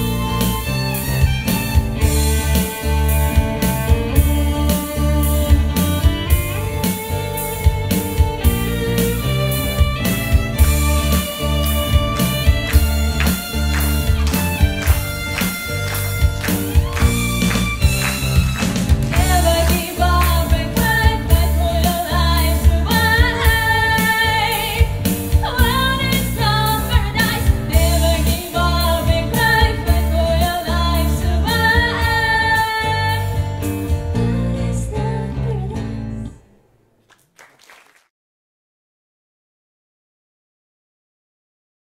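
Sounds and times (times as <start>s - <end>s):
instrumental music with bass: 0.0s - 36.4s
woman singing: 19.2s - 33.4s, 34.2s - 36.2s.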